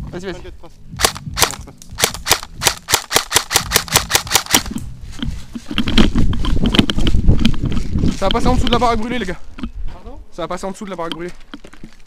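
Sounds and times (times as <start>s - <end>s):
airsoft rifle shots: 1.0s - 4.8s
rumbling rustle of movement: 3.5s - 12.0s.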